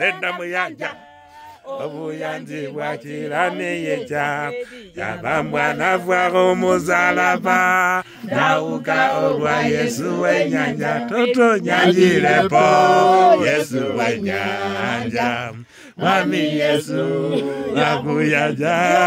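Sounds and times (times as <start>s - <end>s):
man chanting: 3.5s - 8.1s.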